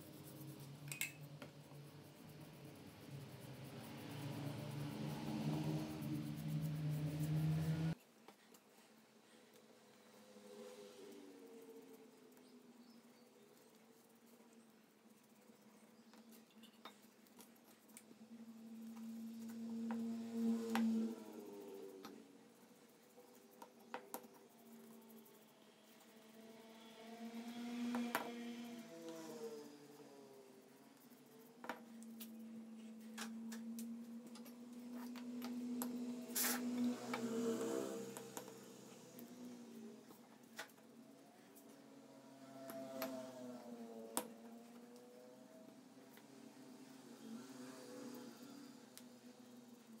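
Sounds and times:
steady low hum: 0.0s - 8.0s
paintbrush strokes on wood: 0.0s - 12.5s, 15.2s - 42.9s
wooden pieces clicking and tapping: 23.6s - 24.4s.

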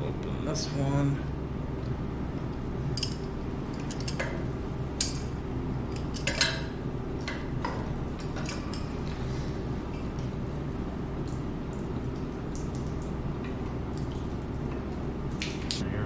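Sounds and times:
low machinery hum: 0.0s - 16.0s
metal tool clinking on pipes: 3.0s - 4.4s, 5.9s - 6.7s.

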